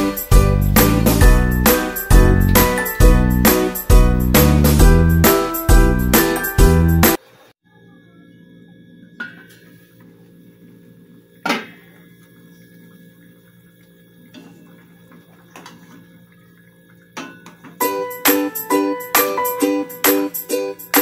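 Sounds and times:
faint simmering: 11.8s - 17.7s.

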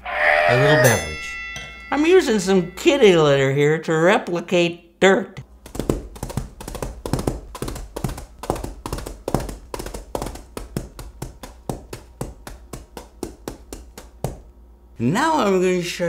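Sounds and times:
coconut shells tapping in grit: 5.4s - 14.5s.

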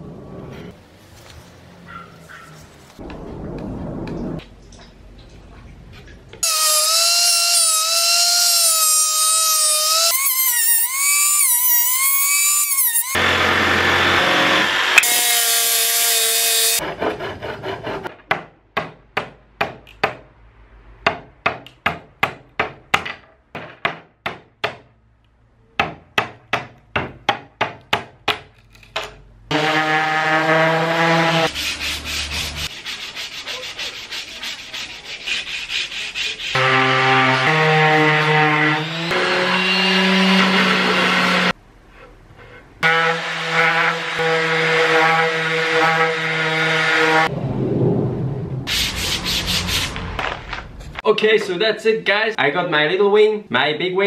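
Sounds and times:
handsaw cutting wood: 6.4s - 18.1s, 29.5s - 41.6s
wood sanded by hand: 30.9s - 36.7s.

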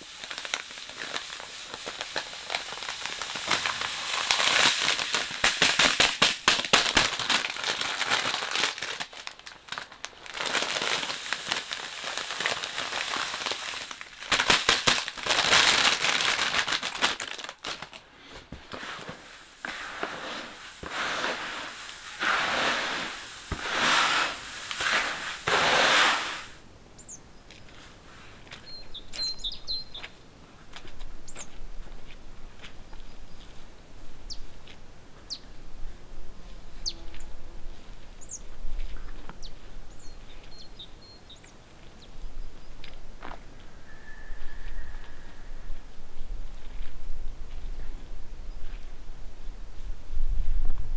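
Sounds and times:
plastic bag crinkling: 0.0s - 25.5s
seeds pattering into bucket: 0.0s - 26.6s
faint bird chirps: 28.6s - 30.1s, 43.5s - 45.8s.

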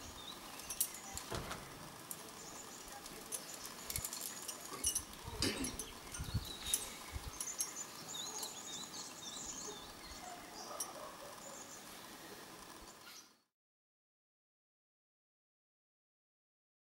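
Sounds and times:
small birds chirping: 0.0s - 13.5s
wind rumble on microphone: 5.9s - 7.4s.

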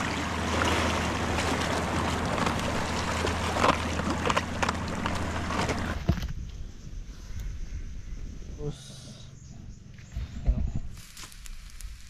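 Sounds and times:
small waves splashing on rocks: 0.0s - 6.0s.

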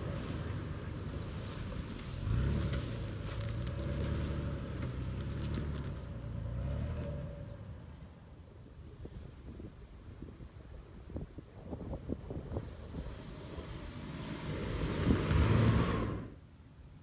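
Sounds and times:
engine pulling under load: 0.0s - 8.0s, 12.6s - 16.4s
brush and sand crackling under tyres: 0.0s - 16.4s.

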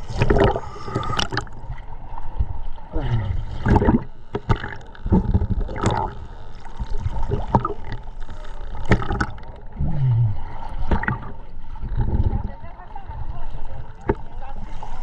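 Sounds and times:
water sloshing and gurgling: 0.0s - 15.0s
knocks and splashes: 3.6s - 6.2s, 8.8s - 10.2s, 10.8s - 12.4s, 14.0s - 14.3s.

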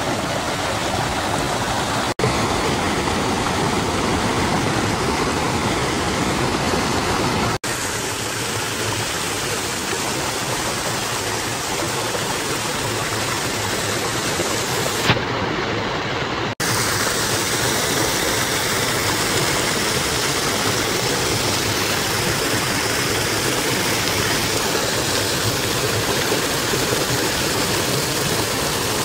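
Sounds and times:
stream rushing over rocks: 0.0s - 29.0s.

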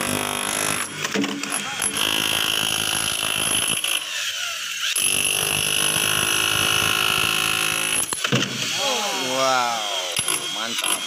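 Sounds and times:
chipping hammer on concrete: 10.1s - 11.0s.

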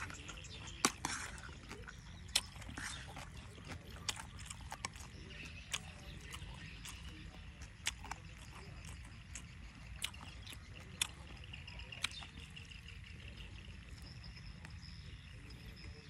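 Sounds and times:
eating clicks and crunches: 0.0s - 16.0s
crickets chirring: 8.0s - 16.0s.

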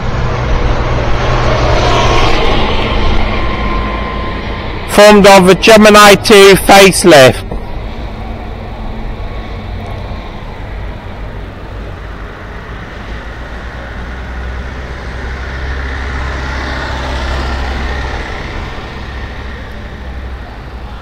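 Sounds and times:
road noise: 0.0s - 21.0s
traffic engine drone: 0.0s - 21.0s.

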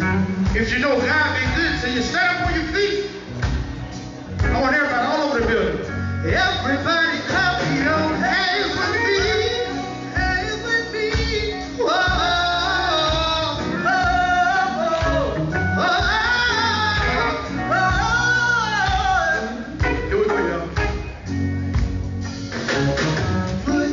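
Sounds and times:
band playing groove: 0.0s - 23.9s
male vocal quartet singing gospel: 6.2s - 20.8s, 23.6s - 23.9s.

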